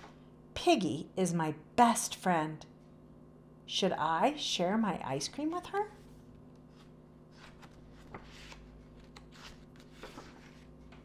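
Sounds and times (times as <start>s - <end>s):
paper page turning: 6.7s - 11.0s.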